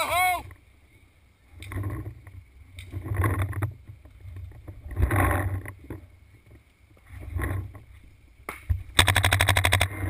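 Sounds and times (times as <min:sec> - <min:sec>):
paintball marker rapid shots: 0:09.0 - 0:10.0.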